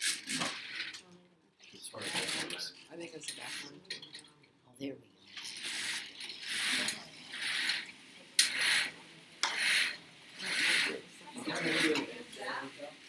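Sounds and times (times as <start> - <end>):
window blinds rasping pull: 0.0 - 1.0, 2.0 - 2.7, 5.3 - 12.2.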